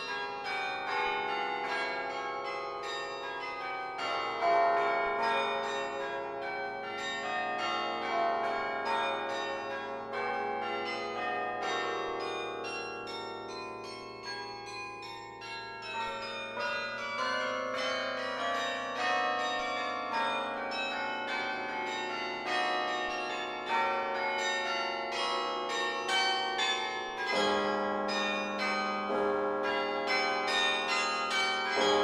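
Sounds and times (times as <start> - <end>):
carillon bells ringing: 10.1 - 32.0.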